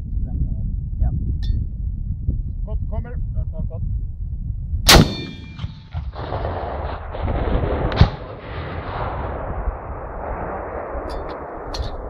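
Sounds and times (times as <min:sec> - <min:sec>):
distant sharp bang: 0:04.9 - 0:09.3
recoilless rifle shot echoing: 0:04.9 - 0:12.0.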